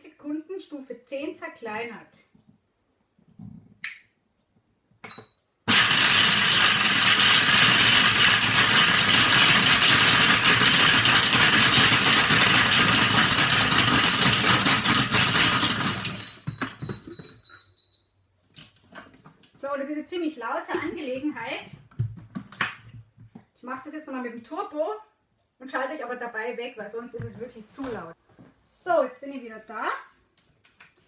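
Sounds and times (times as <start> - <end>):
food processor blade chopping: 5.7 - 16.3
candies clattering in steel bowl: 5.7 - 16.4.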